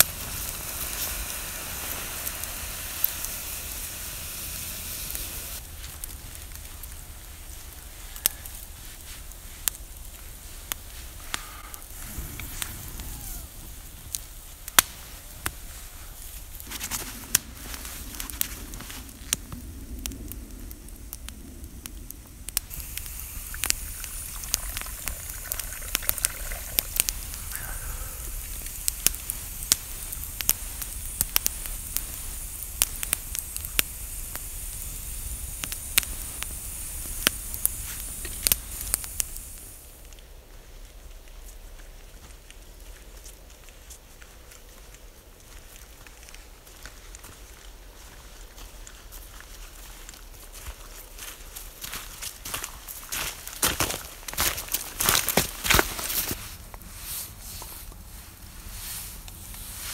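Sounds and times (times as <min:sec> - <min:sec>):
campfire crackling and popping: 0:00.0 - 0:59.9.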